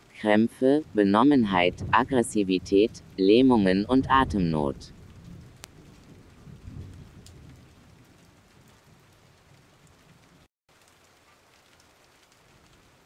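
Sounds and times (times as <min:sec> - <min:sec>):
faint steady hiss: 0:00.0 - 0:05.9
soft low rumble: 0:00.9 - 0:07.2.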